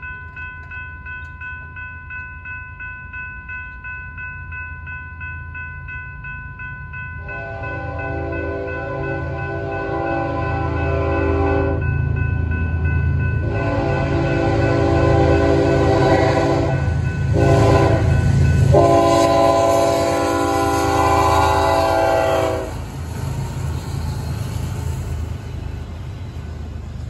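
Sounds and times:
locomotive engines droning: 6.5 - 27.0
train rumbling past: 6.6 - 27.0
locomotive horn blasts: 7.2 - 11.8, 13.4 - 22.8.

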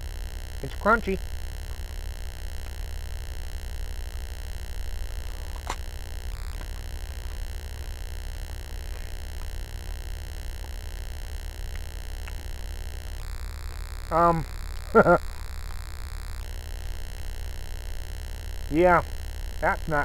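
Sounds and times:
low hum with hiss: 0.0 - 20.0
faint clicks: 1.6 - 2.9, 11.6 - 13.0.

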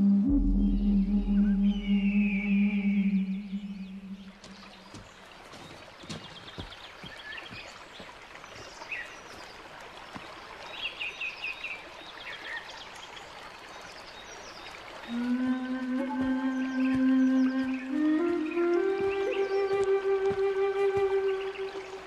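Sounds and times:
music: 0.0 - 3.1, 15.1 - 22.0
birds chirping and trilling: 0.1 - 7.8
creek water running: 0.3 - 22.0.

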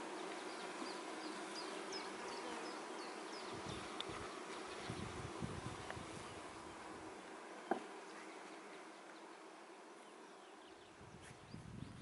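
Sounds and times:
honey bees buzzing: 0.0 - 12.0.

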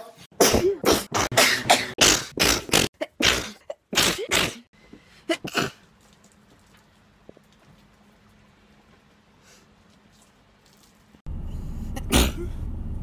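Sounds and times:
woman sneezing: 12.0 - 12.6.

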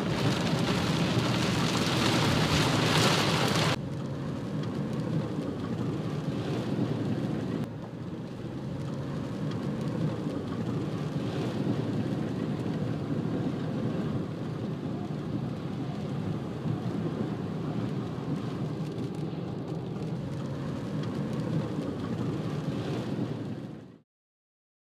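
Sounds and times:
rain and water spray hissing: 0.0 - 3.8
tyres and engine rumble: 0.0 - 24.0.

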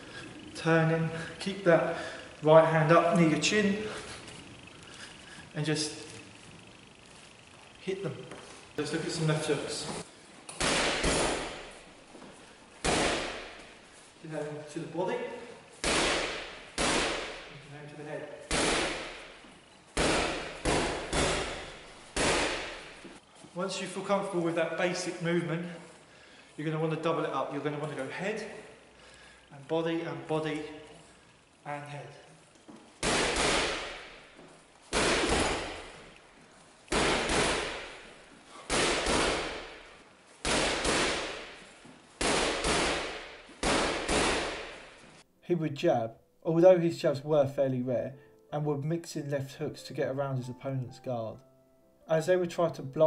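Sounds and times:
gloved punches on heavy bag: 10.6 - 11.8, 12.8 - 13.7, 15.8 - 17.6, 18.5 - 19.4, 20.0 - 23.1, 33.0 - 34.3, 34.9 - 36.0, 36.9 - 45.0.

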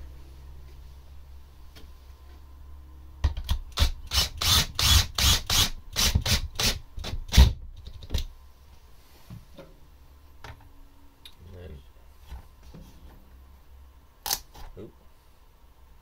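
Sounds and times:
cordless drill driving screw: 3.8 - 6.8.

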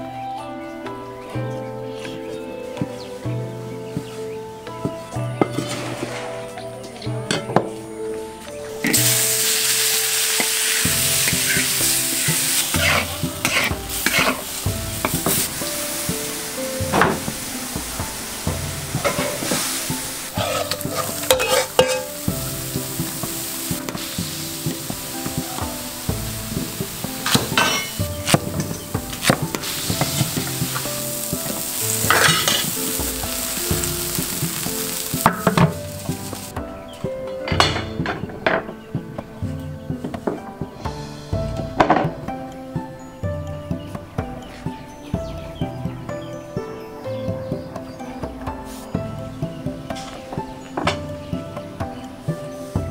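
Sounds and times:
crackling burst: 8.8 - 36.6
food sizzling in a wok: 8.8 - 36.6
stirring strokes scraping wok: 8.9 - 36.5.

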